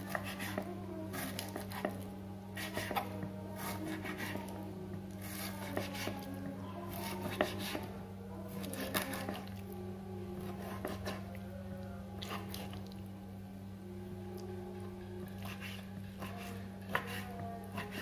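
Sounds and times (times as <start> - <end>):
knife slicing raw chicken: 0.0 - 2.0, 2.6 - 4.5, 5.2 - 6.3, 6.9 - 7.9, 15.4 - 18.0
steady low hum: 0.0 - 18.0.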